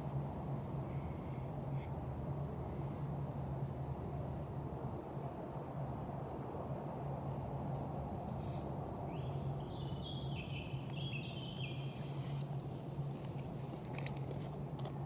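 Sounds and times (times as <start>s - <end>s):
small bird singing: 9.1s - 12.4s.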